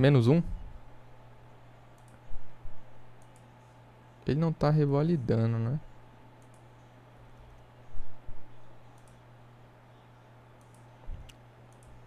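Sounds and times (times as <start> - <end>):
steady low hum: 0.0 - 12.0
keyboard and mouse clicks: 1.9 - 2.2, 3.2 - 3.5, 6.4 - 6.6, 8.9 - 9.2, 10.6 - 12.0.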